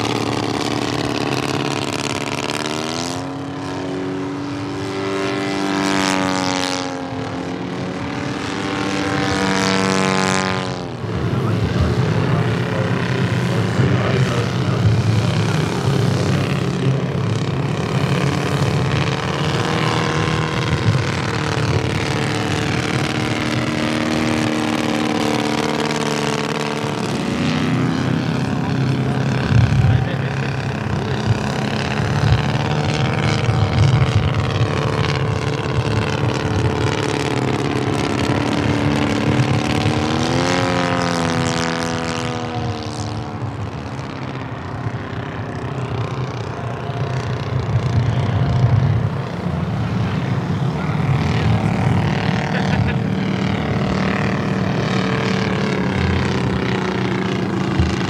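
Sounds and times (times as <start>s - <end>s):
model plane engine buzzing: 0.0s - 58.0s.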